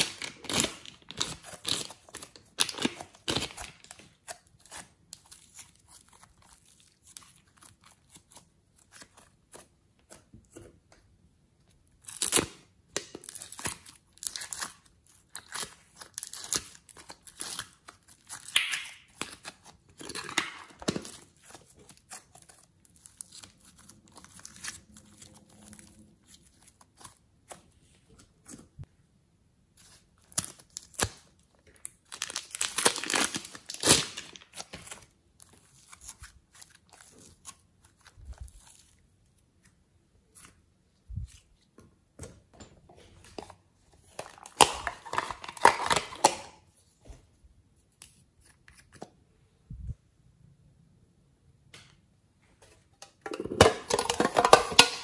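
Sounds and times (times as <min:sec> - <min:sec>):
plastic bags crinkling: 0:31.8 - 0:35.0.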